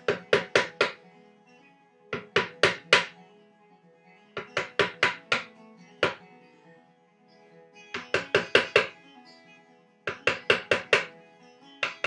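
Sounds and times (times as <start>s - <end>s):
mallet tapping chisel: 0.0s - 1.0s, 2.2s - 3.2s, 4.4s - 6.2s, 8.0s - 9.0s, 10.1s - 11.1s
faint music: 0.0s - 12.0s.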